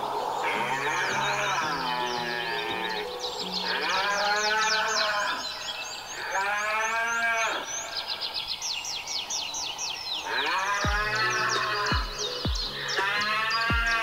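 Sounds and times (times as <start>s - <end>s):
birds chirping: 0.0s - 14.0s
cow mooing: 0.4s - 5.5s, 10.3s - 12.3s.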